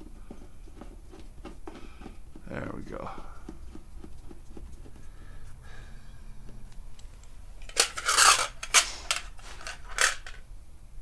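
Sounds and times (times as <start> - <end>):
bolts rattling in metal tin: 7.7 - 10.4.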